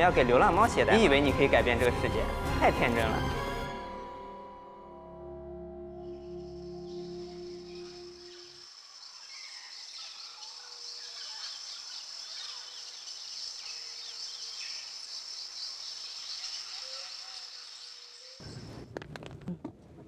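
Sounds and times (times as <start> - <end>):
high insect drone: 5.3 - 18.8
small birds chirping: 6.1 - 18.9.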